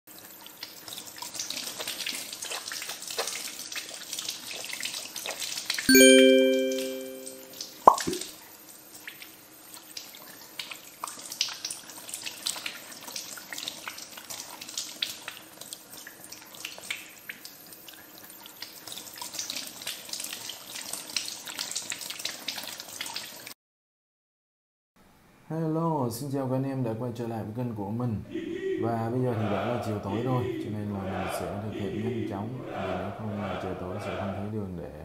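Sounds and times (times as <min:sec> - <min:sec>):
tap water splashing over hands: 0:07.9 - 0:08.2.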